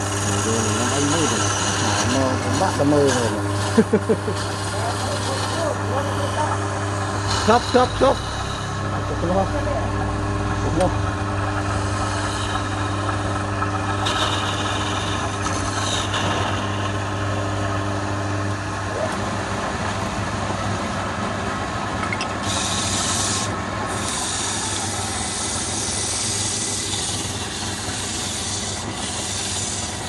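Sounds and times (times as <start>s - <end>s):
chisel scraping spinning wood: 0.0s - 18.8s, 22.4s - 30.0s
lathe motor hum: 0.0s - 30.0s.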